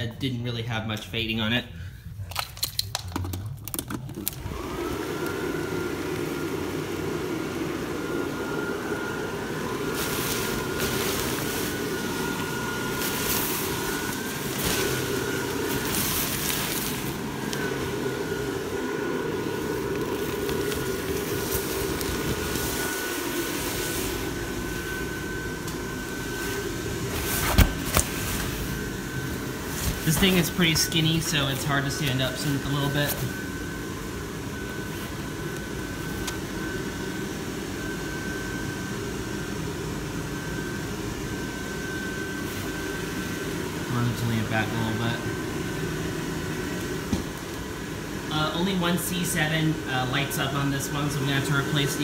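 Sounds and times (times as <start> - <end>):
blower fan whining: 0.0 - 52.0
fabric rustling and flapping: 9.9 - 17.8.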